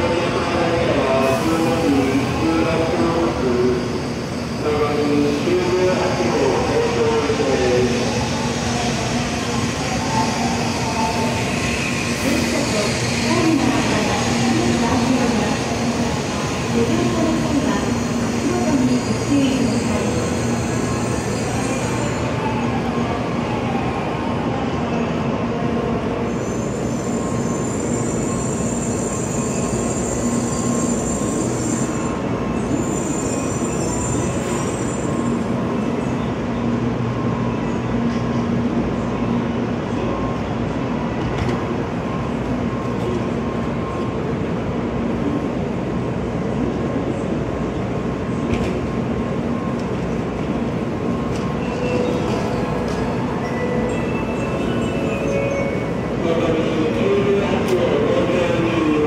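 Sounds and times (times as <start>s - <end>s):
train electric hum: 0.0s - 59.0s.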